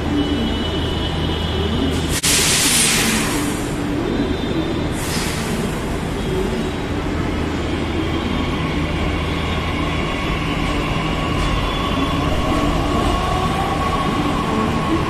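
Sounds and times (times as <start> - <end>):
train wheels rumbling on rail: 0.0 - 15.0
steady high tones: 11.8 - 15.0.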